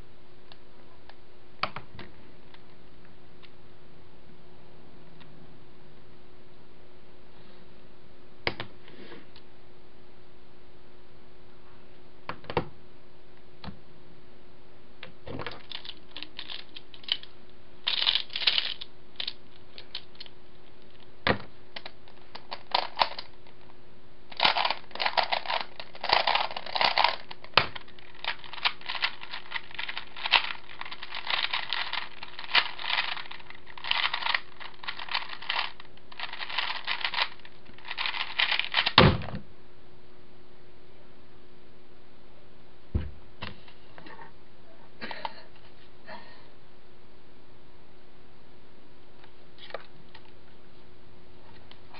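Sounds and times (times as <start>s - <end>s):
plastic puzzle clicking and rattling: 15.5s - 17.3s, 17.9s - 20.3s, 21.8s - 23.3s, 24.3s - 39.0s
dull thump: 42.9s - 43.2s.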